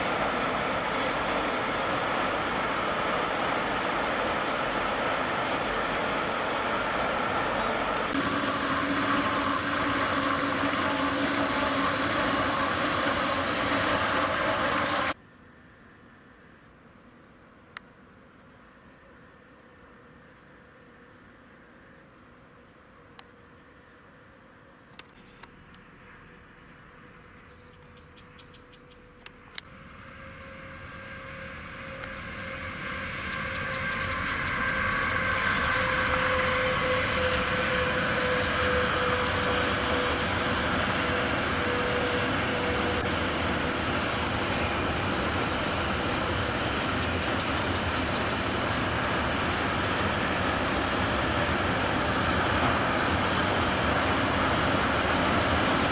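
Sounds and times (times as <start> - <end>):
freight train approaching: 0.0 - 16.5, 23.5 - 55.9
distant electric trains running: 0.0 - 55.9.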